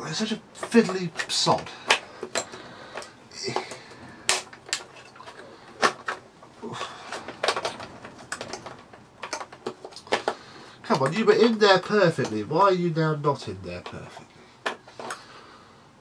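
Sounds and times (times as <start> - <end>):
handling rustle: 0.5 - 12.6.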